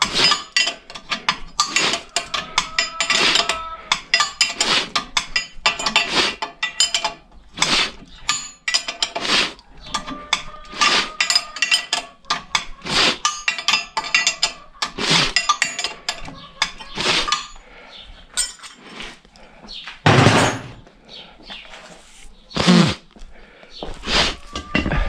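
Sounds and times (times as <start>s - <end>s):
hand tools clinking on metal: 0.0s - 17.6s, 18.3s - 19.0s, 24.4s - 25.0s
heavy thud: 20.1s - 20.8s.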